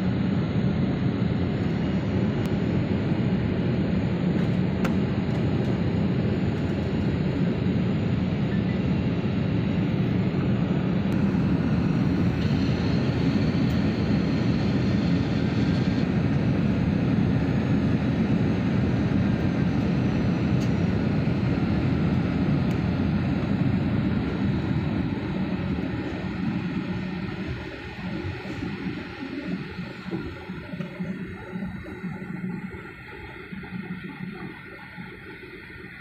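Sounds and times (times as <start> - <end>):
jet engine and rushing air: 10.8 - 32.5.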